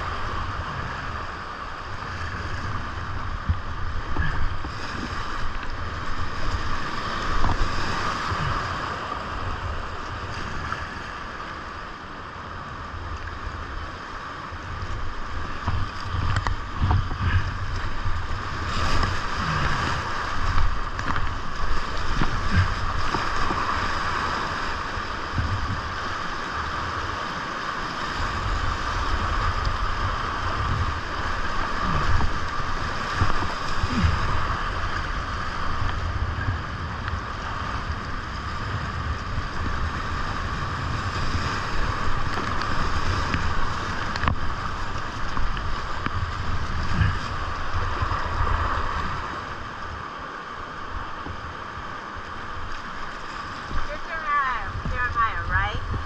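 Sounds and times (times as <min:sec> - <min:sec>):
paddle splashes: 0:00.0 - 0:56.0
rapids rushing: 0:00.0 - 0:56.0
wind buffeting microphone: 0:14.5 - 0:27.2, 0:28.2 - 0:50.2, 0:51.0 - 0:56.0.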